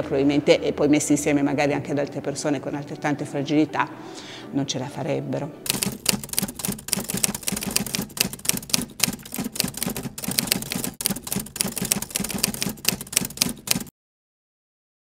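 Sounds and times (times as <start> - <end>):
typewriter keystroke clacks: 5.7 - 13.9.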